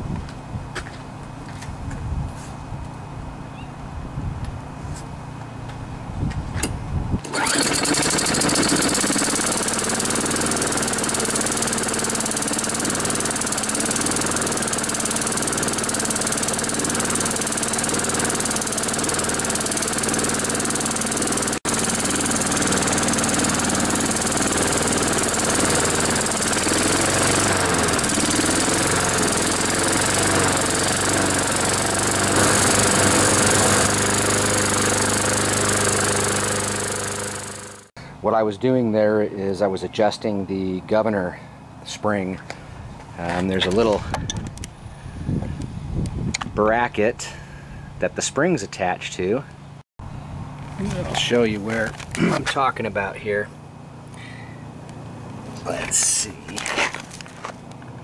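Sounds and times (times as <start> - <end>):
lawn mower engine running: 7.2 - 37.9, 50.6 - 58.0.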